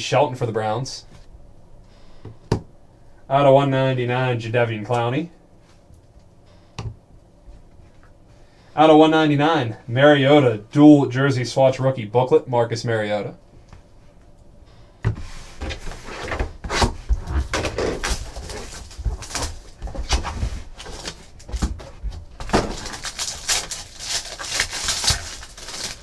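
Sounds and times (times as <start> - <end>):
foil pack crinkling: 17.4 - 26.0.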